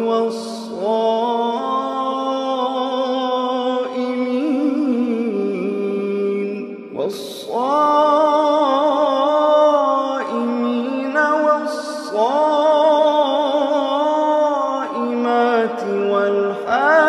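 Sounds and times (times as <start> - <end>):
man chanting melodically: 0.0 - 17.0.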